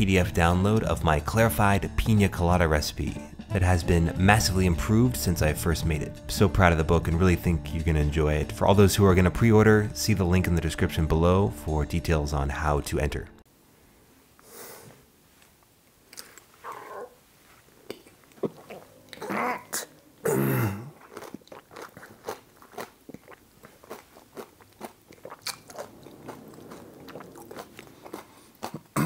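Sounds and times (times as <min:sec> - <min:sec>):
crisp crunching and chewing: 0:20.8 - 0:29.0.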